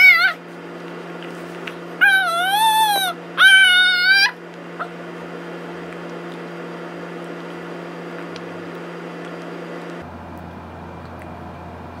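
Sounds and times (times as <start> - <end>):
steady machine hum: 0.0 - 12.0.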